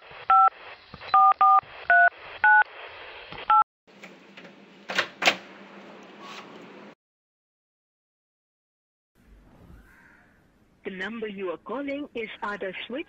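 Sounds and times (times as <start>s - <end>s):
touch-tone dialing beeps: 1.2s - 2.6s.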